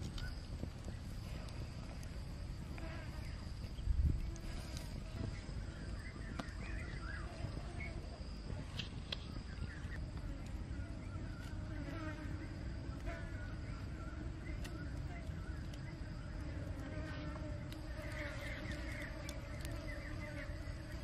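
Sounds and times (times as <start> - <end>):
insects buzzing and chirping: 0.0 - 21.0
steady high-pitched hum: 0.0 - 21.0.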